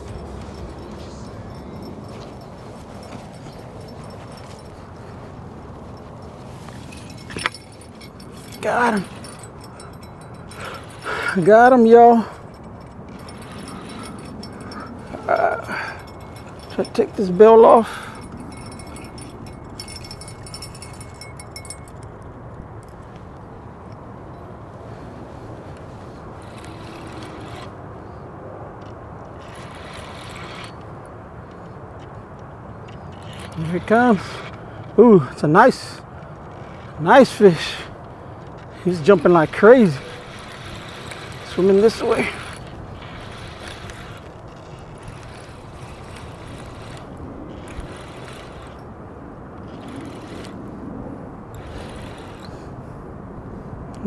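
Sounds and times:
fishing reel cranking: 7.0s - 22.1s, 26.4s - 27.8s, 29.4s - 30.8s, 33.1s - 34.6s, 38.4s - 48.9s, 49.6s - 50.6s, 51.5s - 52.6s.

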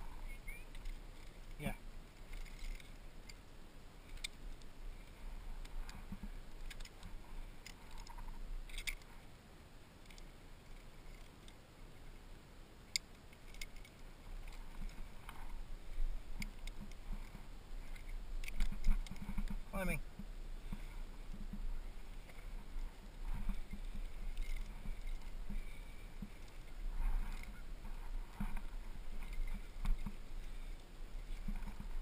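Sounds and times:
faint steady hiss: 0.0s - 32.0s
metallic clicks of carabiners: 0.2s - 3.4s, 4.0s - 9.2s, 10.0s - 11.6s, 12.9s - 19.9s, 23.2s - 27.6s.

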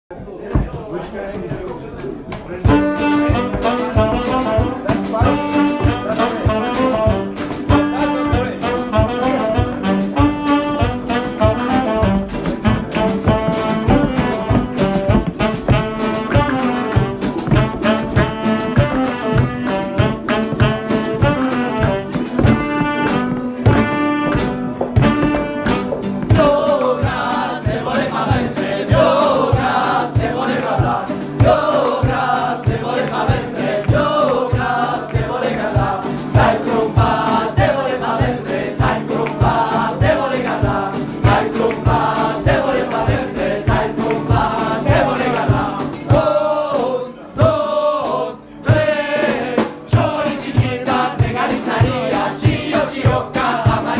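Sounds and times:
steady beat: 0.7s - 53.9s
saxophones playing a tune: 2.6s - 28.2s
group of voices singing: 3.0s - 53.9s.

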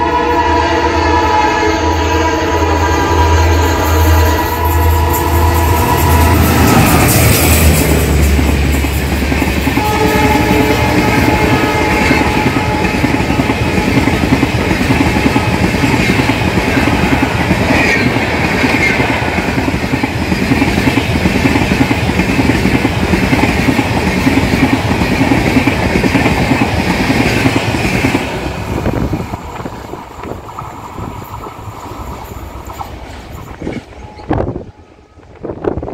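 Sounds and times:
faint train horn chord: 0.0s - 8.4s, 9.7s - 16.1s
train wheels clattering on rails: 4.5s - 35.9s.

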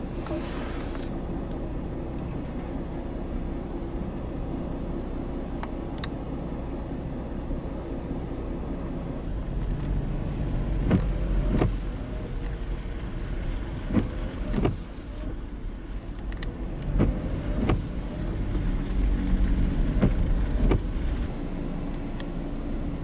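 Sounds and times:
faint wiper motor whine: 0.0s - 23.0s
low rumble of moving car: 0.0s - 23.0s
windshield wiper knocks: 16.9s - 18.0s, 19.9s - 20.9s.

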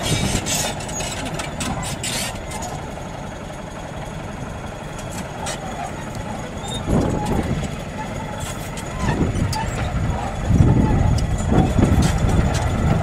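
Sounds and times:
bulldozer diesel engine running: 0.0s - 13.0s.

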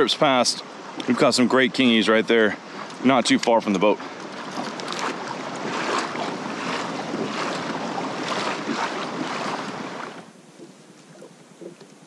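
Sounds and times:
water splashing along kayak hull: 0.0s - 12.0s
wind buffeting microphone: 4.0s - 10.2s.

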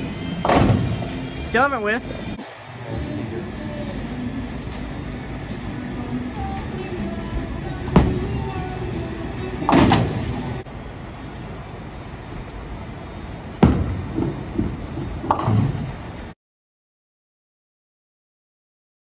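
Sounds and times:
rumble of bowling balls and pinsetters: 0.0s - 16.4s
bowling pins crashing: 0.4s - 1.3s, 7.8s - 8.8s, 9.4s - 10.6s, 13.6s - 16.2s
bowling ball thudding on lane: 7.9s - 8.3s, 13.6s - 16.0s.

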